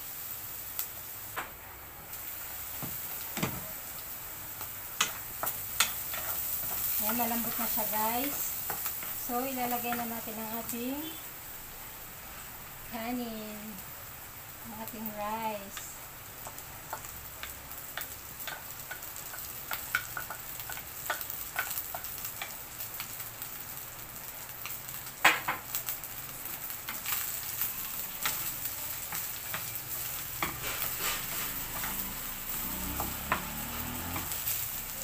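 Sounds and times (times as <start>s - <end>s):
rice sizzling in a pan: 0.0s - 35.0s
wooden spatula scraping a pan: 29.1s - 34.5s.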